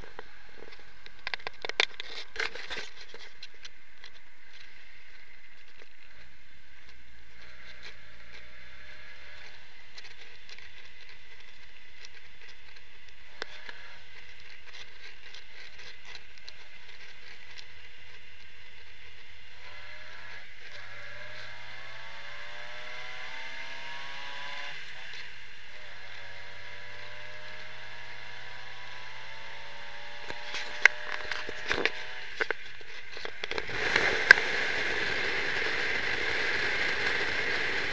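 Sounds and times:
car engine humming: 0.0 - 37.9
road and wind noise: 0.0 - 37.9.

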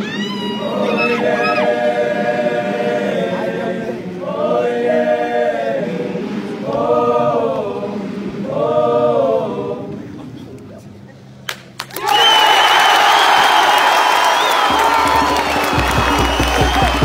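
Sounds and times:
boys choir singing a cappella: 0.0 - 10.6.

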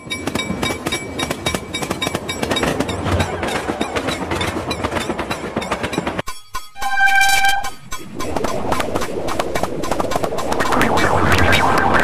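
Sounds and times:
steam train whistle tones: 6.8 - 7.8
crackling processed noise of clicks: 7.6 - 12.0.

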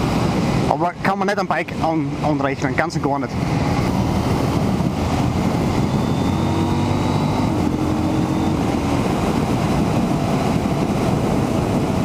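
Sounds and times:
wind rushing over microphone: 0.0 - 12.0
motorcycle engine running: 3.6 - 12.0.

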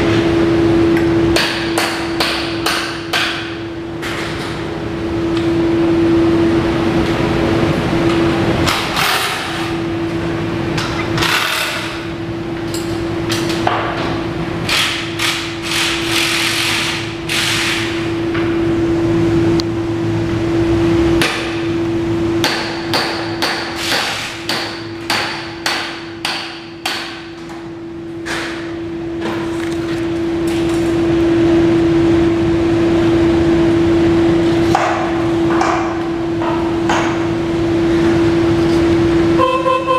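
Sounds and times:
steady hum: 0.0 - 39.9
hammer striking metal: 22.4 - 27.3.

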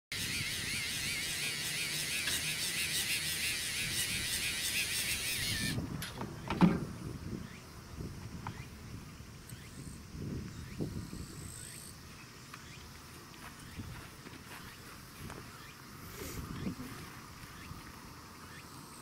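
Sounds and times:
small electric motor whining: 0.1 - 5.8.

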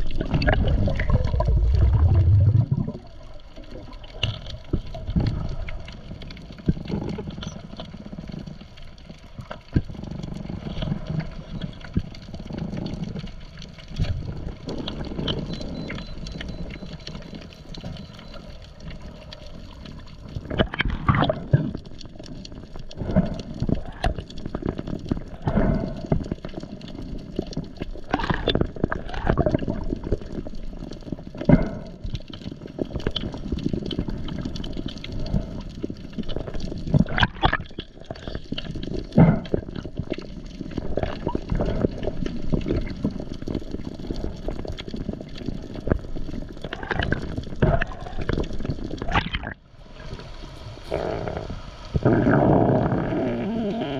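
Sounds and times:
swishes of moving water: 0.0 - 6.0
faint clicks underwater: 0.0 - 50.2
underwater water rumble: 0.0 - 53.9.

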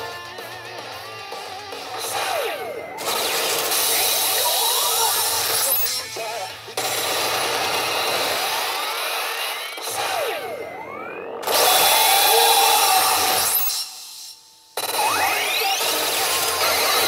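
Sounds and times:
pachinko machine sound effects: 1.8 - 13.8, 14.8 - 17.0
rising and falling electronic tones: 7.6 - 17.0.

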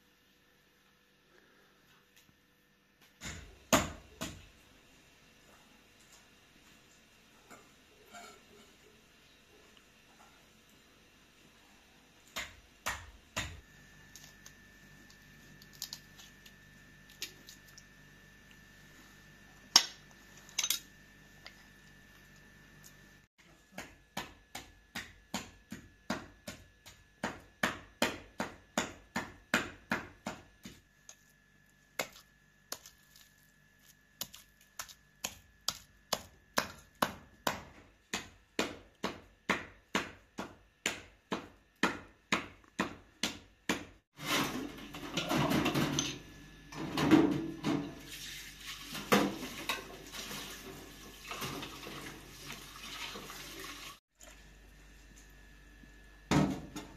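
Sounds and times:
running water splashing: 48.1 - 54.0.

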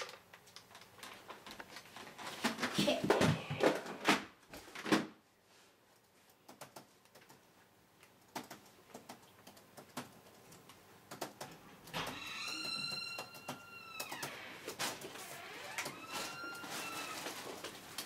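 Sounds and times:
laptop keyboard typing: 6.0 - 14.3.

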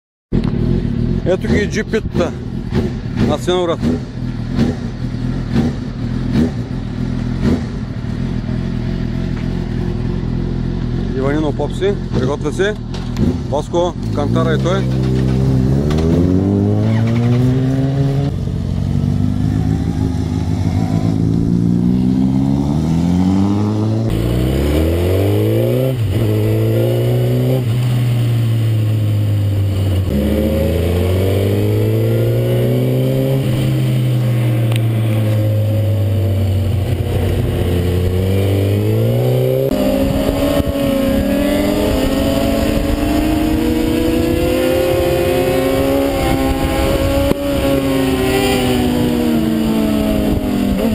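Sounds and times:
motorcycle engine revving: 0.3 - 50.9
wind rush: 39.0 - 50.9.

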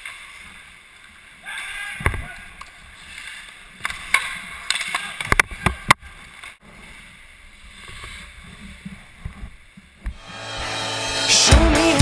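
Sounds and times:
skates scraping on ice: 1.5 - 9.9
hockey sticks clacking on puck: 2.6 - 6.5.

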